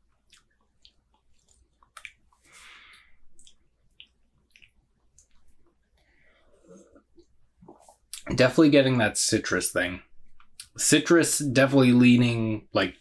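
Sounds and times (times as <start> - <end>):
lip smacks: 0.1 - 2.5, 3.3 - 5.8
tongue clicks: 1.8 - 2.2.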